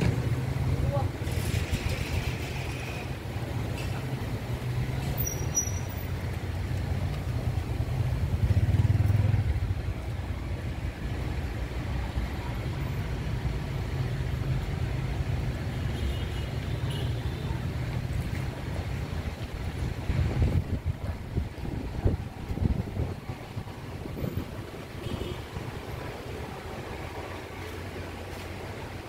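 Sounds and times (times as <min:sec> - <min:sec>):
urban background rumble: 0:00.0 - 0:29.0.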